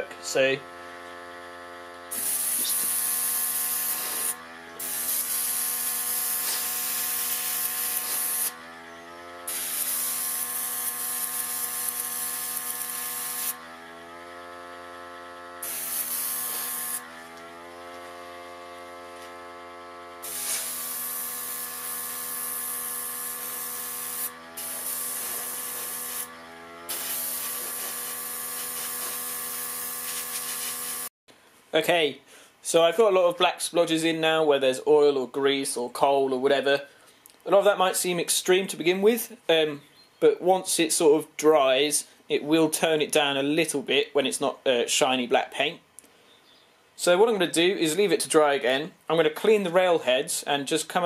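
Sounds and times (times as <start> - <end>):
small compressor humming: 0.0 - 31.6
airbrush air hiss: 2.1 - 8.5, 20.2 - 26.3, 26.9 - 31.1.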